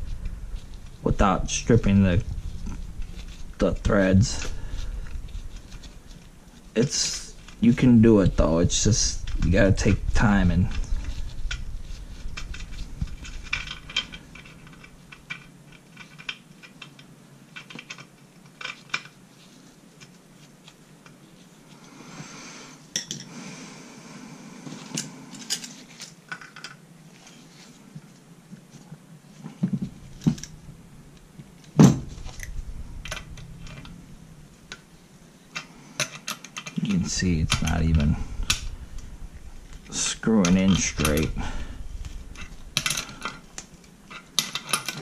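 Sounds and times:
metal tools clinking: 0:39.8 - 0:41.6, 0:42.4 - 0:43.4.

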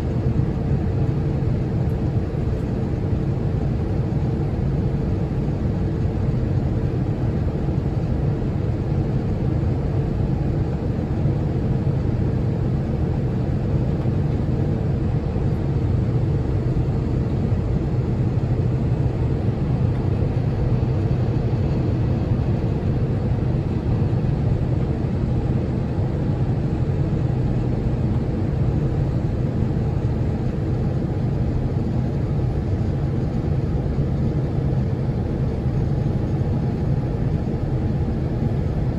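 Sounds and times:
airplane cabin engine rumble: 0:00.0 - 0:38.9.

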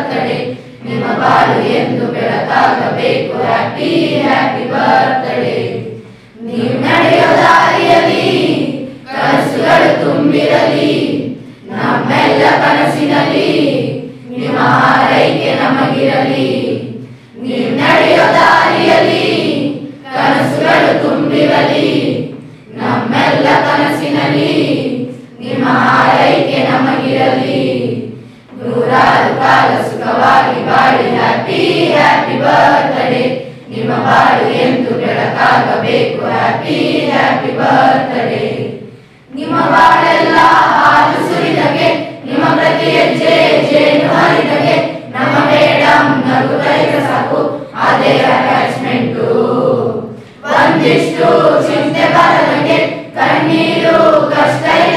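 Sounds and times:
children's choir singing: 0:00.0 - 0:54.9.

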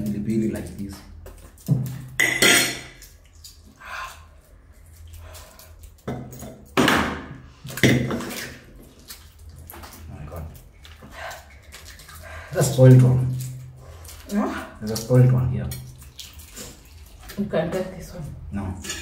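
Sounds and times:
spoons clinking on plates: 0:02.2 - 0:03.1.

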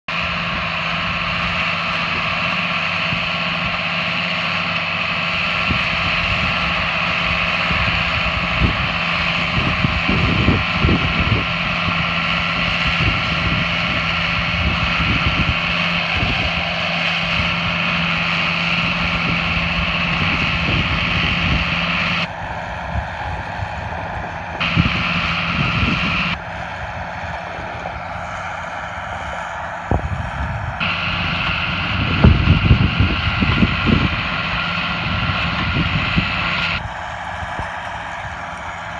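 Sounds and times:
tractor engine running: 0:00.0 - 0:38.9
baler working: 0:00.1 - 0:38.9
wind buffeting microphone: 0:05.1 - 0:38.9.

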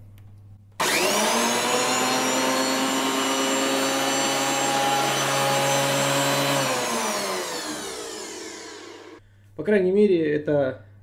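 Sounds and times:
jointer-planer whining and spinning down: 0:00.8 - 0:09.2.

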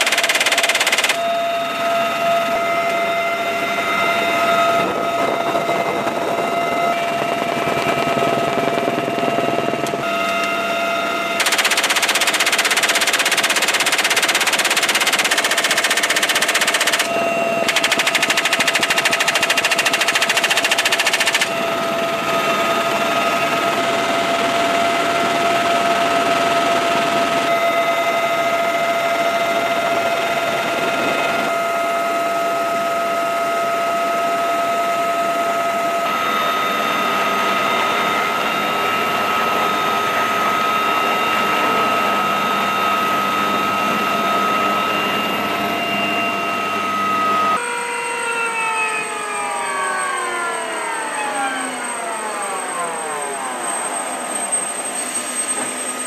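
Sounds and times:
machine gun bursts: 0:00.0 - 0:01.2, 0:11.4 - 0:17.1, 0:17.7 - 0:21.5
helicopter turbine and rotor: 0:00.0 - 0:56.0.

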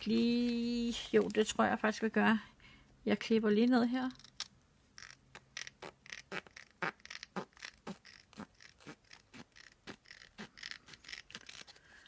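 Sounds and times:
scissors snipping paper: 0:07.1 - 0:12.0.

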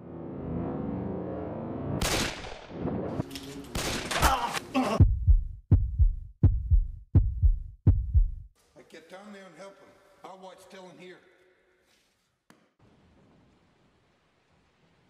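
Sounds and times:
heartbeat thumps: 0:05.0 - 0:08.5.

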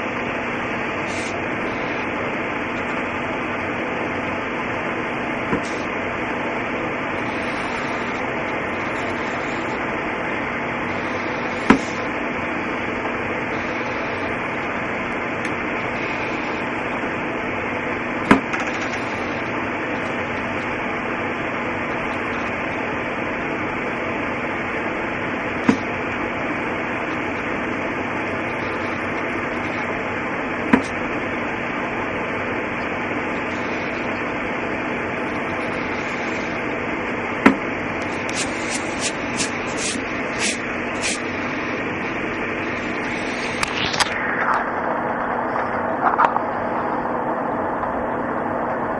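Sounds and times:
steady hiss: 0:35.7 - 0:36.7, 0:38.0 - 0:47.7
pencil scratching on paper: 0:38.2 - 0:41.2.

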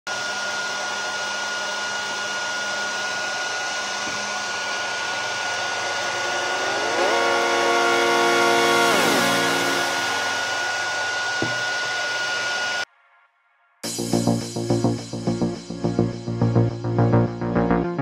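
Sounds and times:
hair dryer fan whining: 0:00.1 - 0:12.9.

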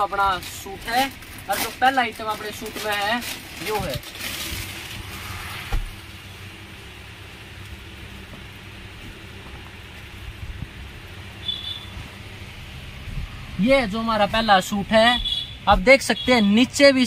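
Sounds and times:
fabric rustling and crinkling: 0:00.4 - 0:05.7.

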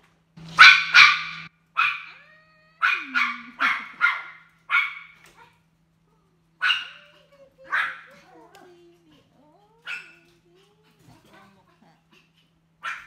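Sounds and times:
dog barking: 0:00.5 - 0:02.2, 0:02.8 - 0:05.2, 0:06.6 - 0:07.1, 0:07.7 - 0:08.1, 0:09.8 - 0:10.2.

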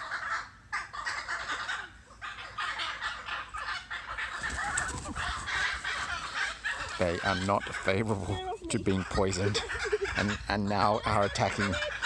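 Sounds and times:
bird calling in harsh bursts: 0:00.0 - 0:07.9.

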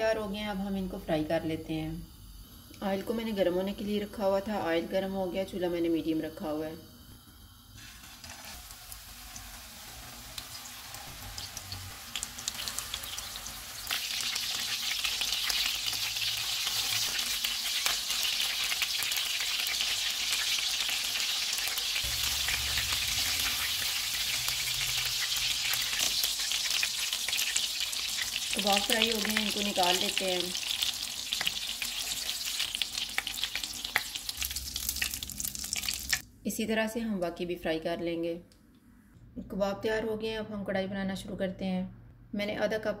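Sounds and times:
meat sizzling in hot oil: 0:06.2 - 0:36.2.

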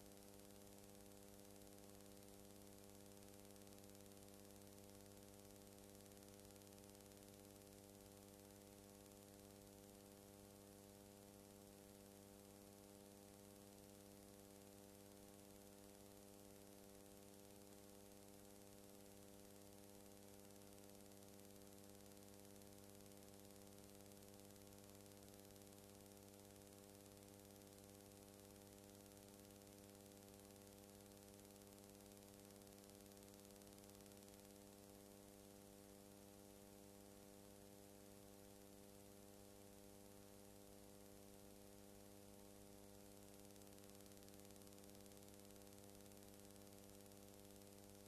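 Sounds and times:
faint electrical hum with hiss: 0:00.0 - 0:48.0.

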